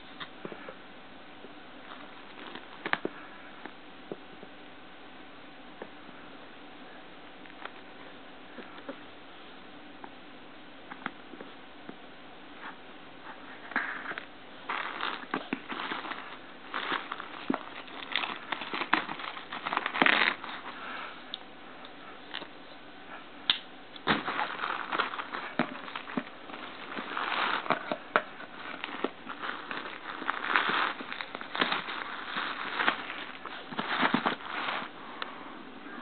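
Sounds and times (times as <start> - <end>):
plastic wrap crinkling: 1.8 - 3.0, 14.2 - 21.0, 24.0 - 35.0.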